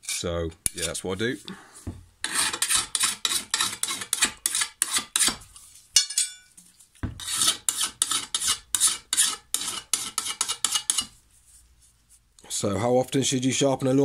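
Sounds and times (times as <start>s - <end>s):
hand file rasping on metal: 2.2s - 5.4s, 7.2s - 11.2s
metallic clink: 6.0s - 6.5s.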